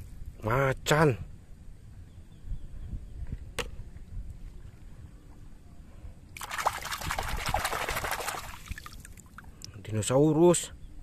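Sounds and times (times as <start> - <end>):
water splashing and sloshing: 6.4 - 9.7.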